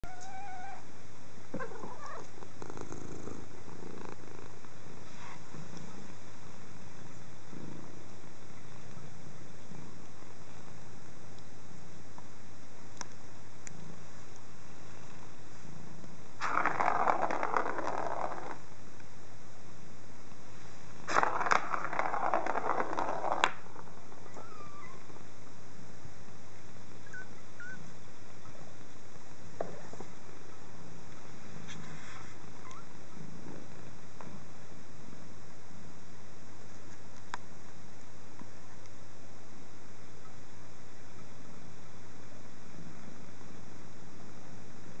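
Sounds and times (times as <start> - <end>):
cat purring: 1.5 - 10.9, 13.6 - 18.7, 21.1 - 25.3
ball rattling in plastic track: 16.4 - 18.6, 21.1 - 24.0.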